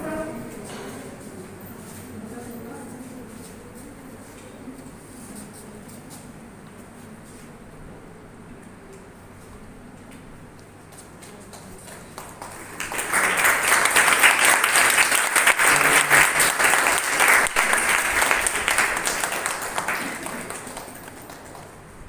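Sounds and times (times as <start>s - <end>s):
audience applauding: 11.5s - 22.0s.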